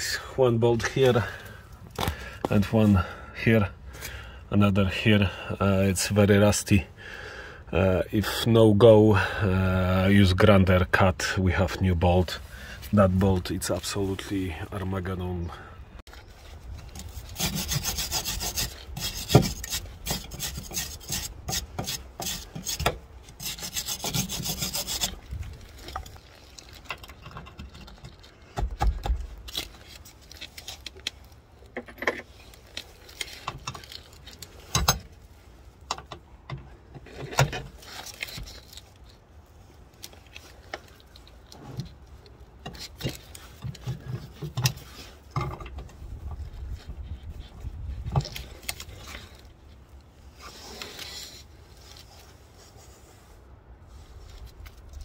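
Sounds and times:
hand tool scraping rusty metal: 16.8s - 28.5s, 31.7s - 35.2s, 42.6s - 45.8s, 50.3s - 53.1s
hand tools clicking and knocking: 25.8s - 29.6s.

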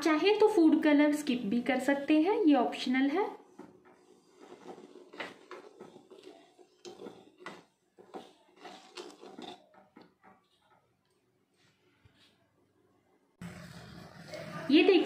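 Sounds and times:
spoon clinking and scraping pan: 3.9s - 10.9s.

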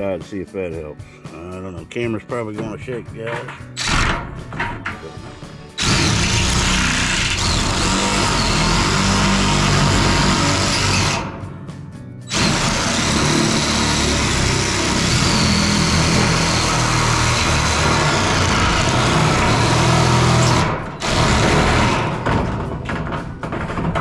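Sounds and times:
drill shear cutting sheet metal: 3.4s - 4.7s, 5.8s - 11.4s, 12.3s - 22.6s.

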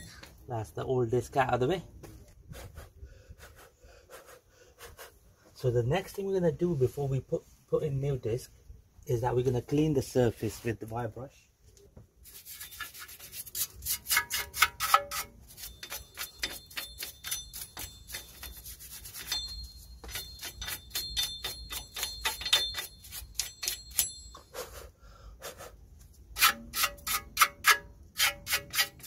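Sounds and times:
wire brush scrubbing metal: 12.2s - 24.1s, 26.4s - 29.0s.

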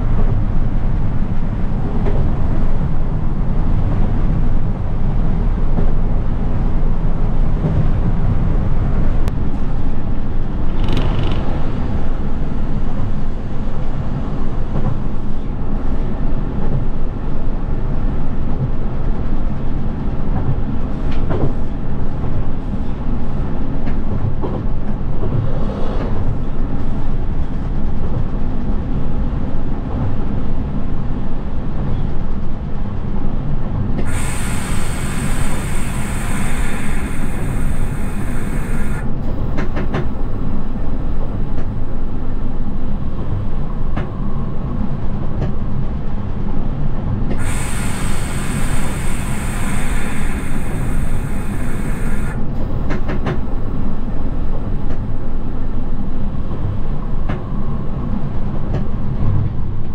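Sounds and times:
electric train rumbling: 0.0s - 59.9s
high hiss: 34.0s - 42.0s, 47.3s - 54.8s.

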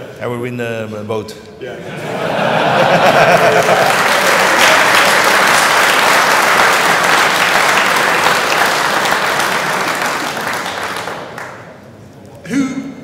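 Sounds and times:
audience applauding: 2.6s - 11.8s.

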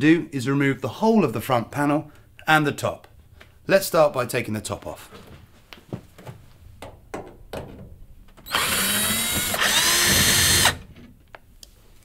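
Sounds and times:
cordless drill motor whining: 8.4s - 10.9s.

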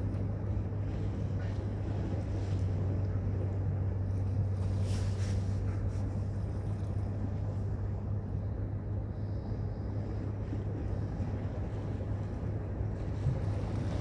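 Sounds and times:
steady low rumble: 0.0s - 14.0s
sea water lapping against boulders: 10.2s - 14.0s.

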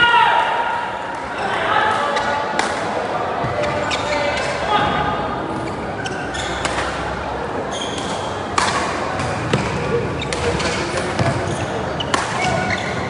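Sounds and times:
shoe squeak: 3.6s - 4.6s, 5.6s - 6.7s, 7.7s - 8.4s, 10.2s - 13.0s
racket striking shuttlecock: 8.0s - 11.4s, 12.1s - 12.7s.

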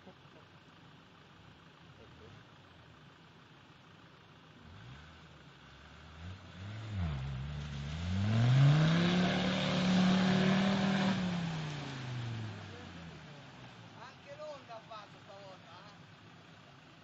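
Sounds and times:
off-road engine revving hard: 4.6s - 13.8s.

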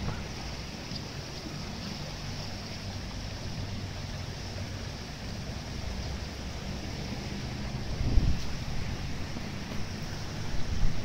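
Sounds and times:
floodwater rushing: 0.0s - 11.0s
wind buffeting microphone: 2.8s - 11.0s.

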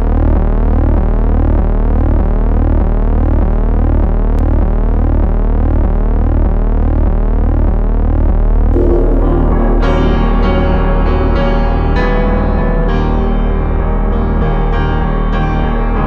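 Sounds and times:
synthesizer music: 8.8s - 12.8s.

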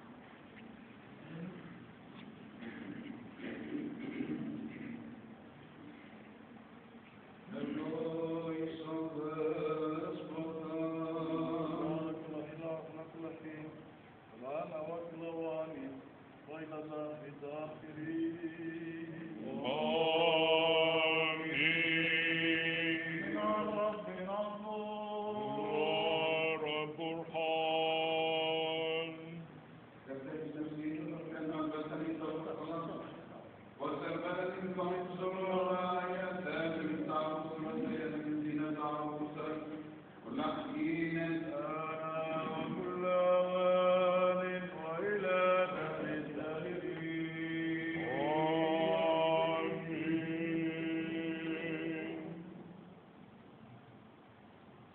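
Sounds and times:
male voices chanting: 16.6s - 29.4s.

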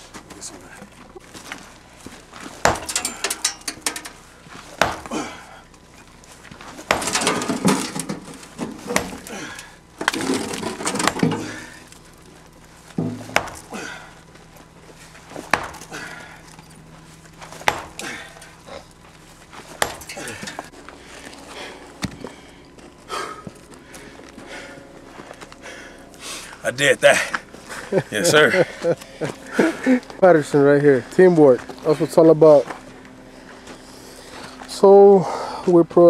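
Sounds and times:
hand tool striking rock: 2.6s - 4.2s, 4.8s - 5.1s, 6.8s - 7.4s, 8.6s - 9.4s, 13.0s - 13.7s, 15.4s - 16.7s, 17.6s - 18.5s, 19.8s - 20.7s.

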